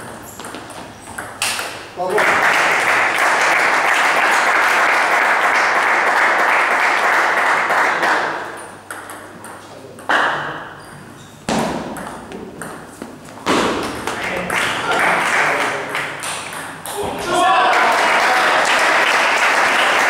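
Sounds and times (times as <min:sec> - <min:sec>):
spectators cheering and clapping: 0:02.2 - 0:08.1, 0:16.9 - 0:20.0.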